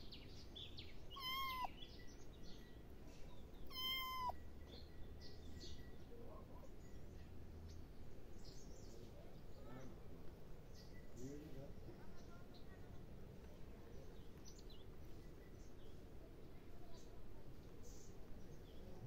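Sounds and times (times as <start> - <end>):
kitten meowing: 1.1 - 1.7, 3.7 - 4.4.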